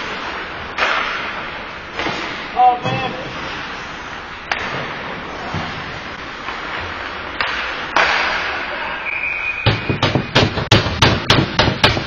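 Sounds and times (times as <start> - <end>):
ice rink ambience: 0.0 - 12.0
short whistle: 9.0 - 10.3
sharp knocks: 9.6 - 12.0.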